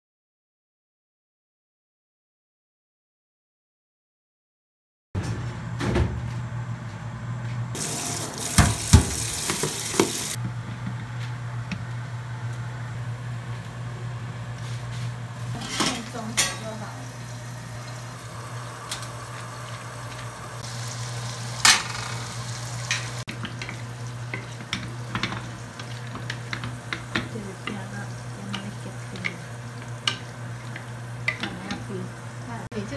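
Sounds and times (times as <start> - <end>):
fish frying in oil: 16.1 - 32.7
utensil clacking against pan: 22.9 - 32.0.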